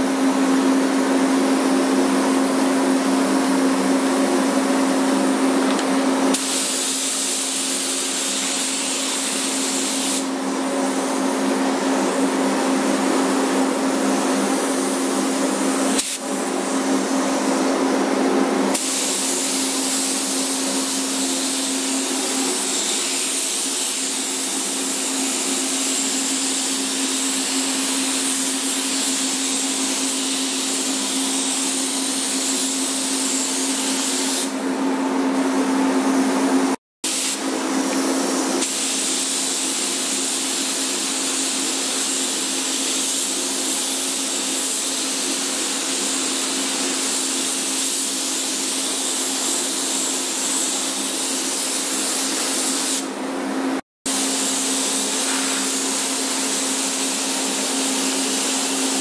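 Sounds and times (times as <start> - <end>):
paint spray gun hissing: 5.7 - 10.4, 14.1 - 16.3, 18.7 - 34.6, 37.1 - 53.1, 54.1 - 59.0.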